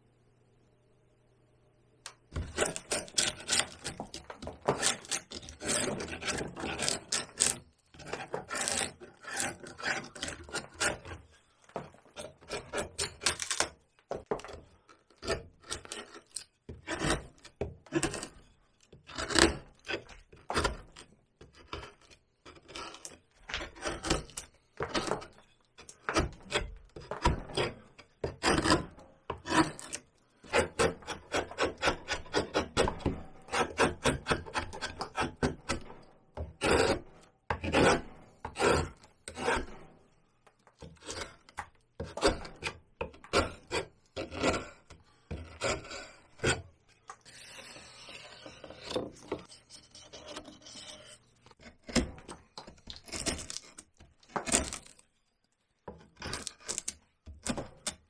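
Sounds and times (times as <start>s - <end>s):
chisel cutting into bark: 2.4s - 11.2s, 19.1s - 39.8s, 47.3s - 55.0s.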